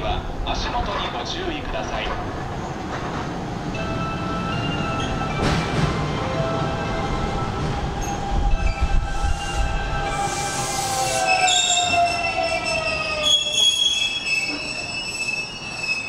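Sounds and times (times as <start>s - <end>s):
electric train whine: 2.5s - 16.0s
wheel and brake squeal: 8.0s - 16.0s.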